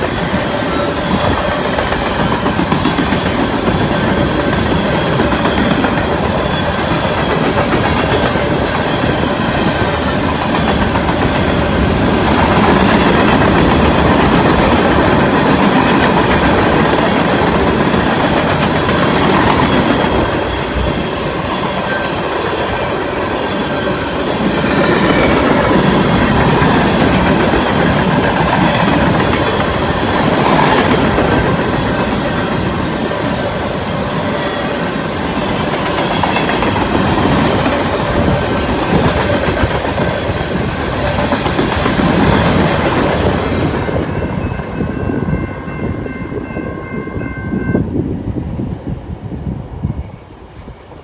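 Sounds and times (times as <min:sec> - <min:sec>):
train wheels clattering: 0:00.0 - 0:33.6
crossing signal bells ringing: 0:43.6 - 0:47.9.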